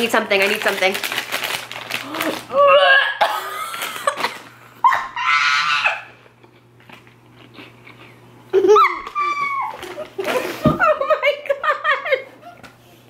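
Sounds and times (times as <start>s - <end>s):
high strained vocal cry: 2.0s - 3.4s, 4.9s - 6.1s.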